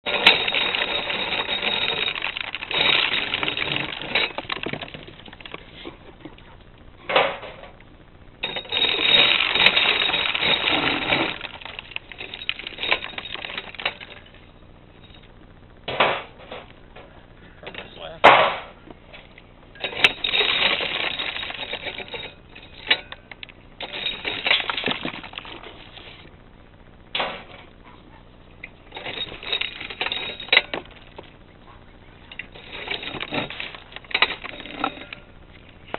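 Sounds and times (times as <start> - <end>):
corn sheller clattering: 0.0 - 7.7, 8.4 - 14.4, 19.8 - 26.2, 28.8 - 35.9.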